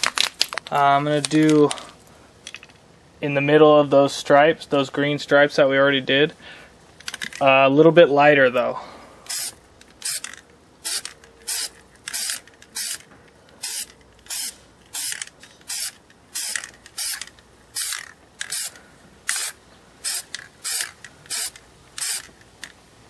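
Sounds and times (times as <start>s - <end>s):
aerosol spray paint bursts: 9.3s - 10.2s, 10.8s - 13.0s, 13.6s - 22.3s.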